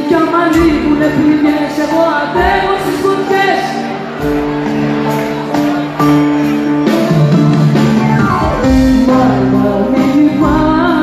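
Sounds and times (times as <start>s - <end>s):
woman singing: 0.0s - 3.9s, 8.7s - 11.0s
live band playing: 0.0s - 11.0s.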